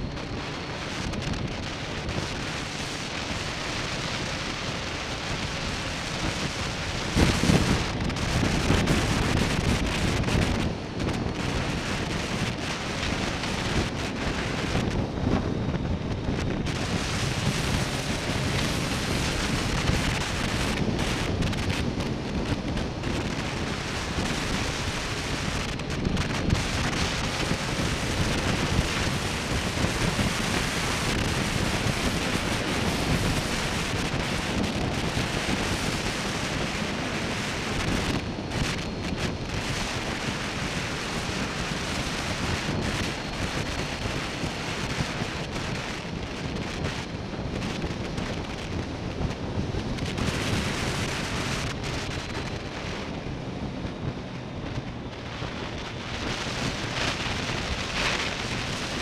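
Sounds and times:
motorcycle engine: 0.0 - 39.2
wind rushing over microphone: 0.0 - 59.0.

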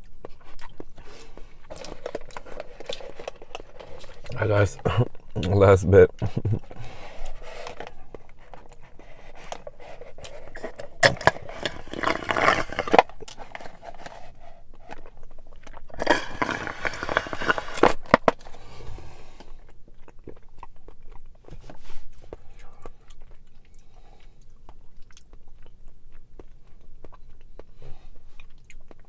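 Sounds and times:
slurping through a straw: 9.3 - 14.4, 15.9 - 19.3
straw scraping plastic cup: 9.3 - 14.4, 15.9 - 18.5.

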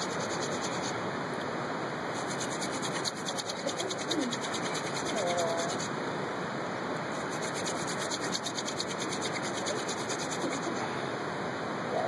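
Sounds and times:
wooden hand drill grinding: 2.2 - 5.9, 7.2 - 10.8.

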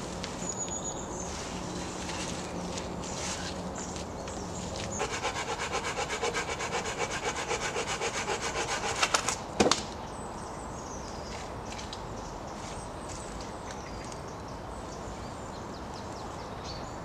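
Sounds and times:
hand saw cutting wood: 5.0 - 9.4.

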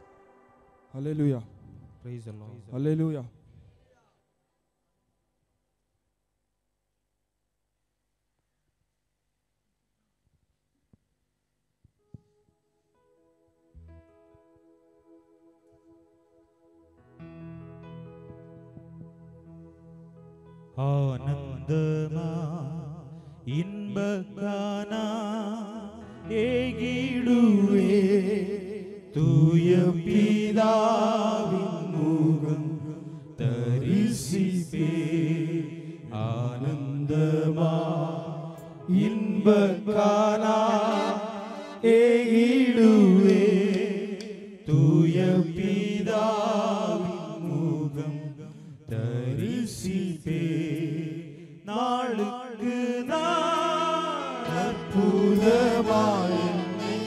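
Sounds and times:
person singing slow worship song: 17.2 - 57.0
held musical accompaniment: 38.6 - 46.4, 53.1 - 57.0.

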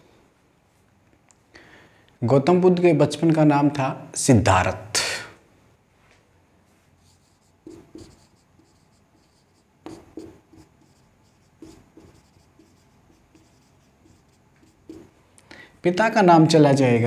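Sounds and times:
marker pen writing on whiteboard: 7.0 - 15.2.

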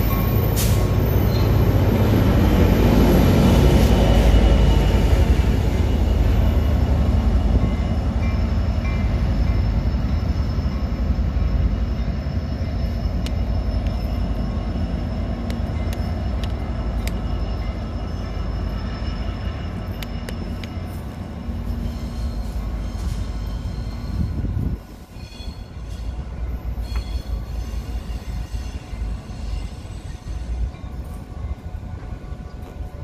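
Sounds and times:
diesel locomotive rumbling: 0.0 - 33.0
high clicks from rails and wheels: 11.5 - 24.2.

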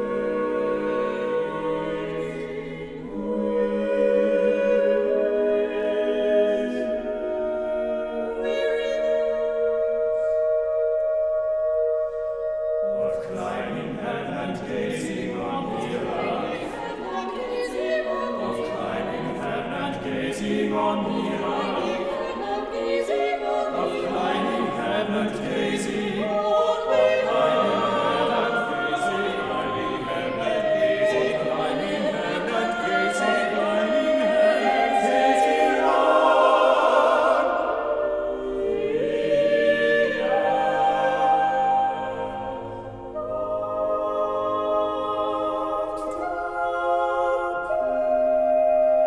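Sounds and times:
a cappella choir singing: 0.0 - 49.0.

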